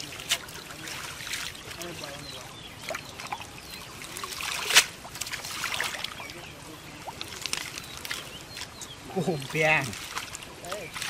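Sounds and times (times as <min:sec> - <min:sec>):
pond water splashing and trickling: 0:00.0 - 0:11.0
sharp loud splash: 0:04.2 - 0:06.1.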